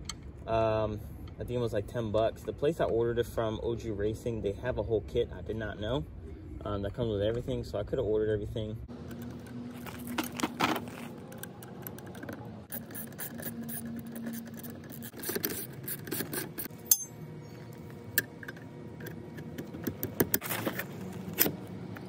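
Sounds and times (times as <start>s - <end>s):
metal scraping: 8.9s - 21.6s
metal clicks and clinks: 11.3s - 17.2s.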